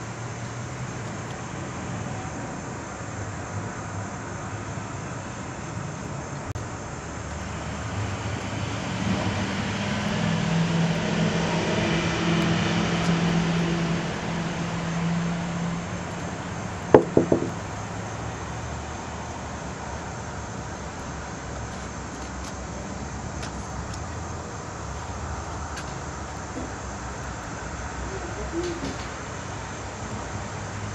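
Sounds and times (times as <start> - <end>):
passing engine drone: 7.0 - 19.3.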